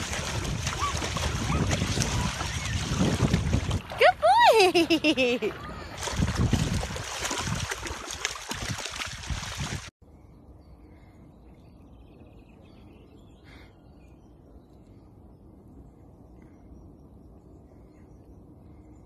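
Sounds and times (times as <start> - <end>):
dog splashing through water: 0.0 - 4.2, 5.5 - 9.9
wind buffeting microphone: 0.0 - 9.9.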